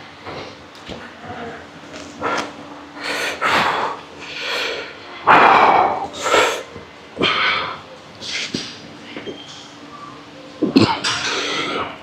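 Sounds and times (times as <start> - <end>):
man breathing hard: 2.2 - 7.8.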